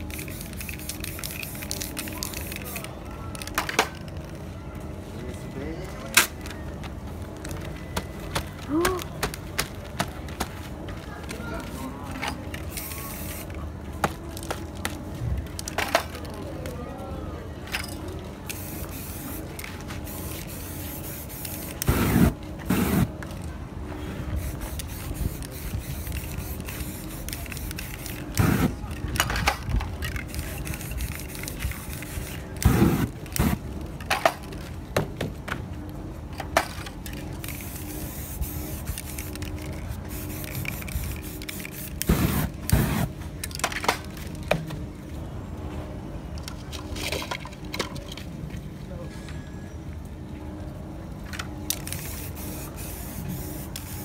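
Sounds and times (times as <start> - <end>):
spray-paint can spraying: 0.0 - 3.5, 12.6 - 13.6, 18.5 - 23.1, 24.4 - 28.8, 30.1 - 33.6, 37.4 - 43.1, 51.7 - 54.0.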